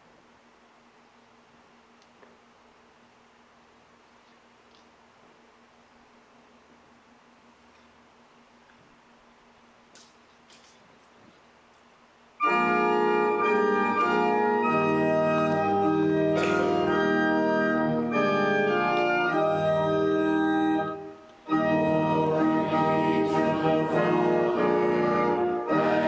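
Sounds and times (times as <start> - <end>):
organ playing slow chords: 12.4 - 26.0.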